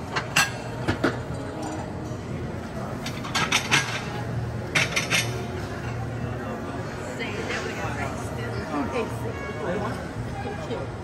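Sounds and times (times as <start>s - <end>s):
dishes and cutlery clinking: 0.1s - 1.9s, 3.0s - 6.1s.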